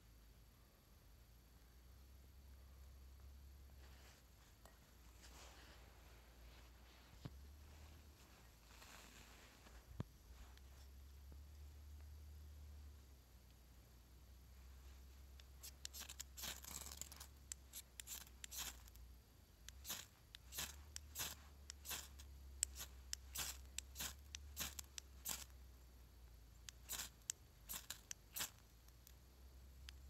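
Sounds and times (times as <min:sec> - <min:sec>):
striker scraping ferrocerium rod: 0:19.8 - 0:25.5, 0:26.7 - 0:28.6.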